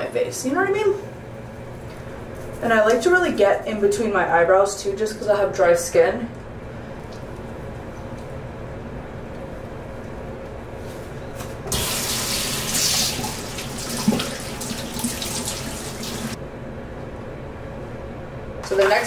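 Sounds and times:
sink tap running: 11.7 - 16.4
water splashing on face: 11.7 - 16.4.

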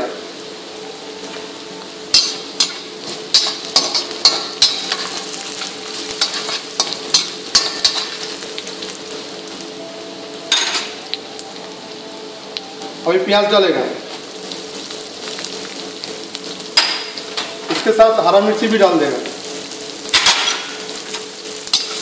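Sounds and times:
spices sizzling in hot oil: 0.0 - 22.0
steady hum: 0.0 - 22.0
spatula scraping a wok: 2.2 - 8.4.

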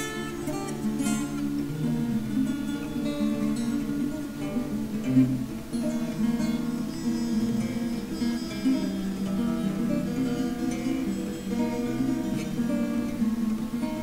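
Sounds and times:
acoustic guitar plucking: 0.0 - 14.0.

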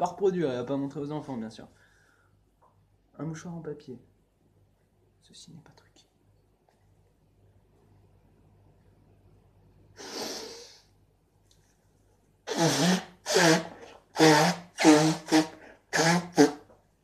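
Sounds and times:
person blowing nose: 10.0 - 10.9, 12.5 - 16.7.

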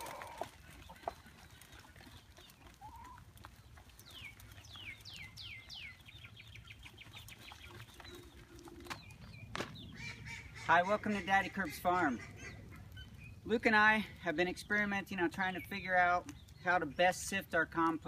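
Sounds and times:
chickens clucking faintly: 0.0 - 5.4.

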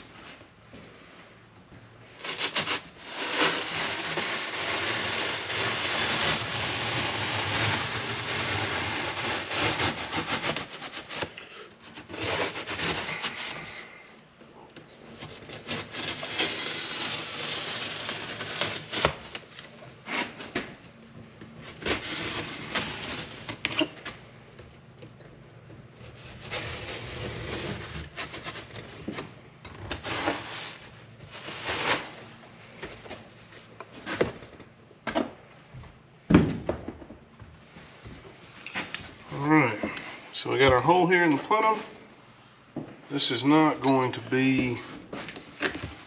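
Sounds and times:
knife scraping through board: 2.2 - 14.0, 26.0 - 28.8, 31.4 - 32.2.

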